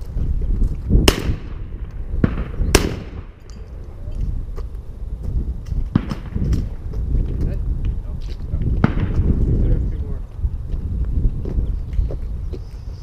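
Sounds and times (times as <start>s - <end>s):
steady low rumble: 0.0s - 13.0s
shotgun shots: 1.0s - 3.4s, 5.9s - 6.5s.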